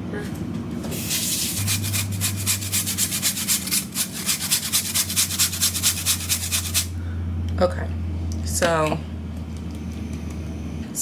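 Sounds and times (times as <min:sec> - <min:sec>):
steady low hum: 0:00.0 - 0:11.0
frozen fruit on metal grater: 0:01.5 - 0:06.9.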